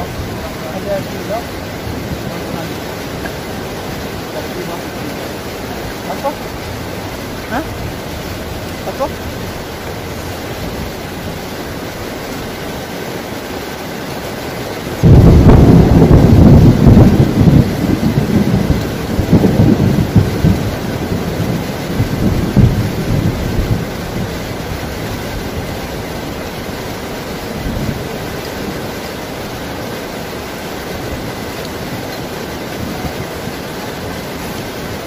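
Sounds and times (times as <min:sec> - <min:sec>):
heavy rain: 0:00.0 - 0:35.0
thunder rolling: 0:14.9 - 0:29.6.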